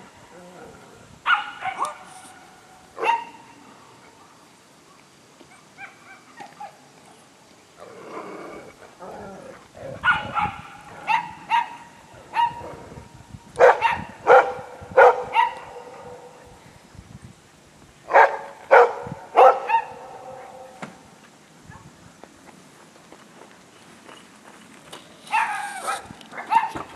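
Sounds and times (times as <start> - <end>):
dog barking: 1.3 - 2.2, 3.0 - 3.5, 10.0 - 12.7, 13.6 - 16.4, 18.1 - 20.8, 25.3 - 26.9.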